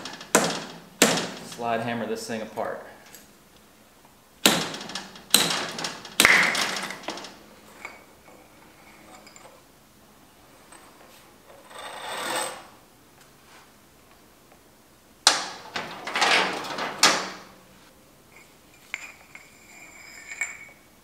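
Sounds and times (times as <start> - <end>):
metal parts scraping: 15.7 - 17.2, 18.4 - 20.8.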